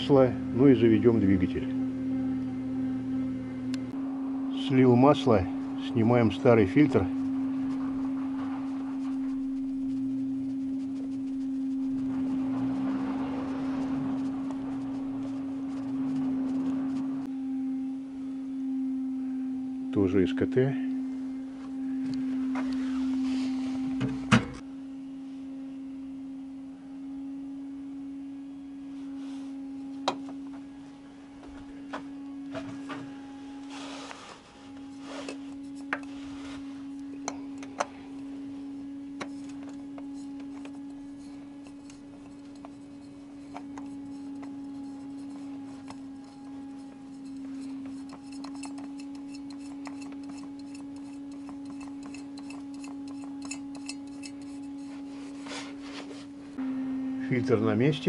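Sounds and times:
steady low hum: 0.0 - 58.0
oil filter clicking and rubbing: 39.1 - 55.8.

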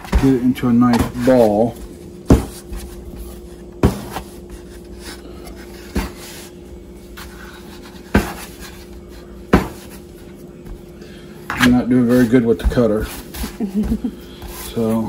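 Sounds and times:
bench scraper scraping dough: 11.5 - 15.0.

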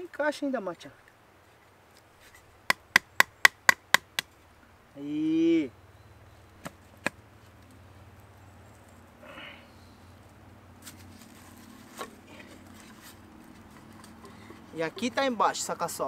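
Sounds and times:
sharp wooden knocks: 2.7 - 4.3.

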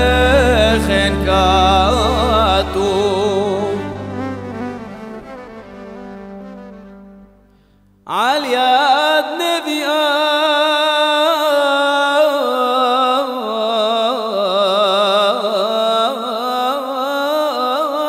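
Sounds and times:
man singing ornamented melisma: 0.0 - 5.8.

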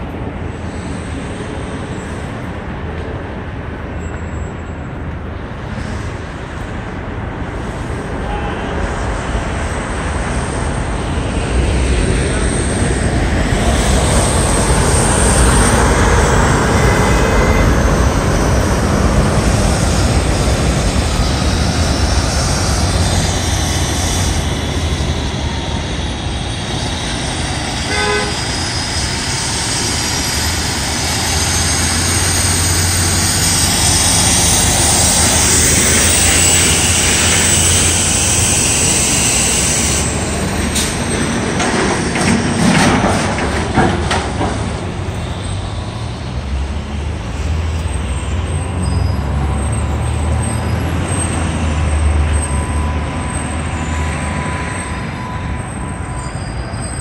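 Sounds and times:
truck engine and tyres passing: 0.0 - 57.0
truck horn toot: 27.9 - 28.5.

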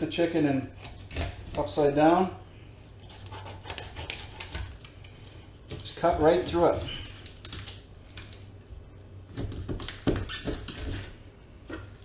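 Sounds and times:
knife cracking chicken bones: 3.1 - 8.5.

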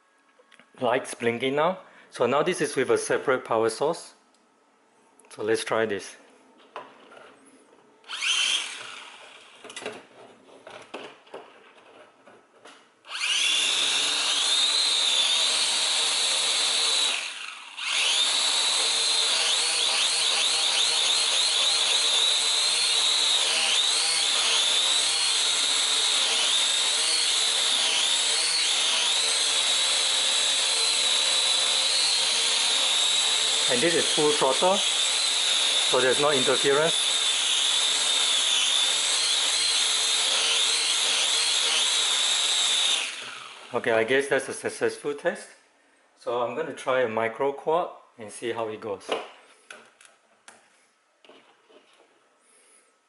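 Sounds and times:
quadcopter motors whining: 8.1 - 9.5, 13.1 - 43.7.

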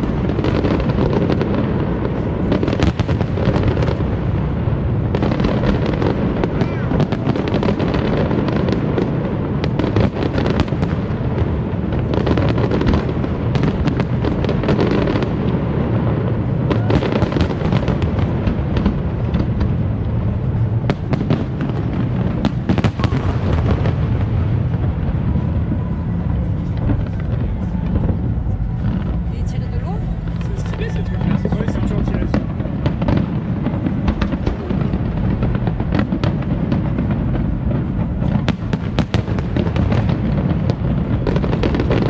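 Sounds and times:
fireworks bangs: 0.0 - 42.0
steady low din: 24.8 - 32.8.

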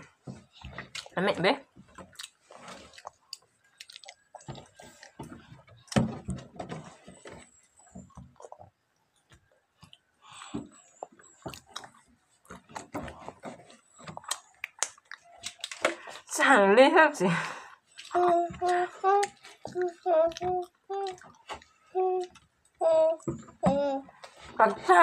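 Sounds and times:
people chewing close up: 0.0 - 6.1, 7.7 - 16.3, 17.7 - 22.8.

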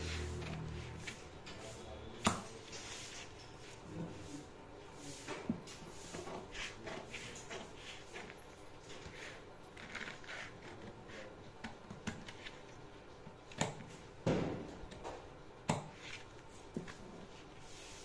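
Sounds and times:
scissors cutting paper: 9.1 - 12.6.

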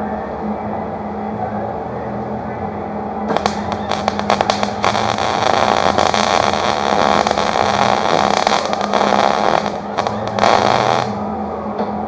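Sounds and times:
welding arc crackling: 3.3 - 11.2.

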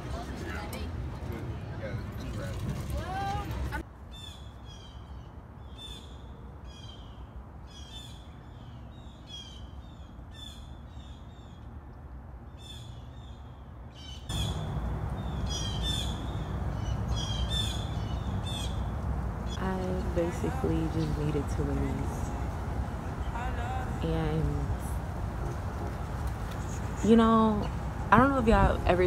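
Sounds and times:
background hiss and rumble: 0.0 - 29.0
harsh bird calls: 12.6 - 21.5.

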